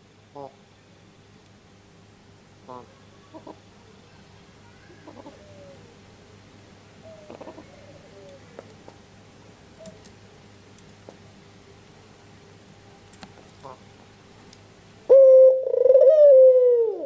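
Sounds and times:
dove cooing: 4.8 - 6.0, 7.0 - 8.7, 15.1 - 17.0.

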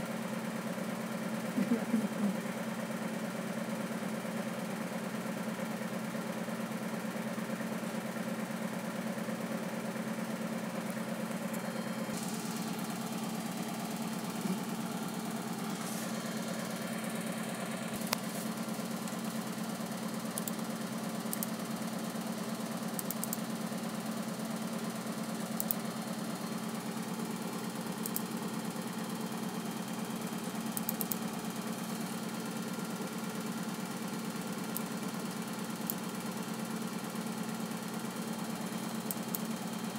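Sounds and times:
fan humming: 10.8 - 21.6.

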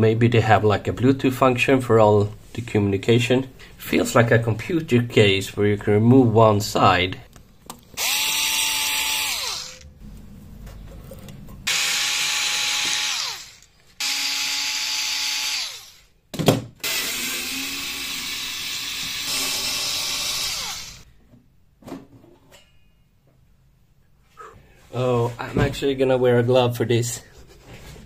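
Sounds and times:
power drill whining: 8.0 - 9.9, 11.7 - 16.1, 16.8 - 21.1.

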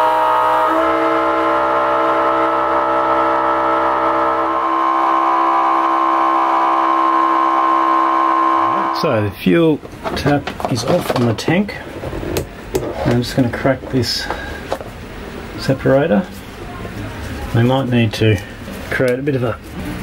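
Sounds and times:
pump whining: 0.0 - 9.2
low hum: 0.0 - 9.4.

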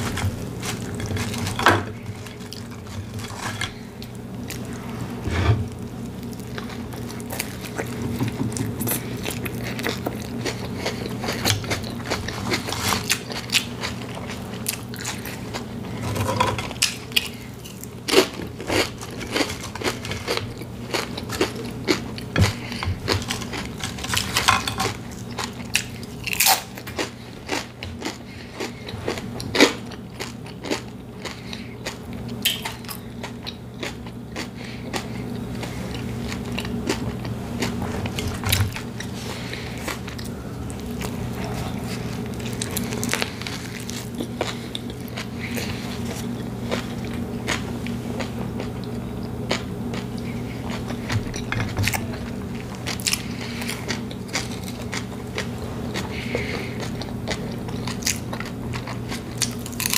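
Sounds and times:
sandwich chewing and crunching: 0.0 - 59.9
low hum: 35.3 - 47.4.

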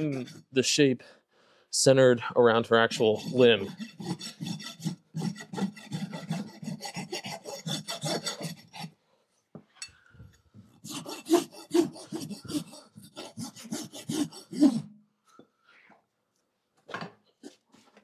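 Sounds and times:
rasp filing a hoof: 0.0 - 0.8, 2.5 - 9.0, 10.7 - 14.9.

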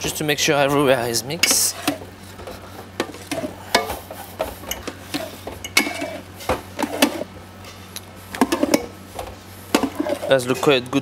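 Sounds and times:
steady low hum: 0.0 - 11.0
metal beater scraping mixer bowl: 1.3 - 2.1, 3.1 - 7.3, 9.7 - 10.6.

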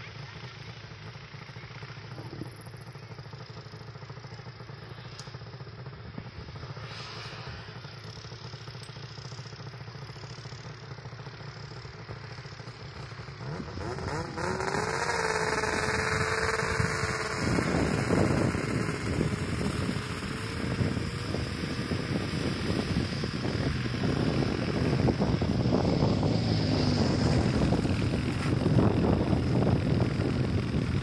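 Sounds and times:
snowmobile engine revving: 13.1 - 31.0.

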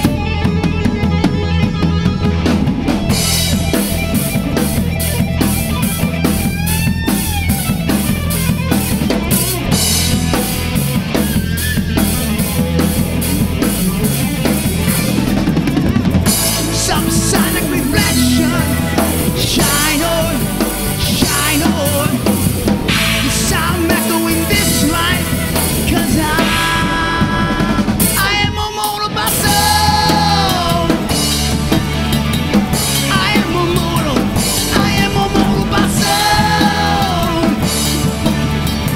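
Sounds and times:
bass guitar: 0.0 - 38.9
drum kit: 0.0 - 38.9
electric guitar: 0.0 - 38.9
person singing: 16.4 - 31.5, 32.9 - 38.1.

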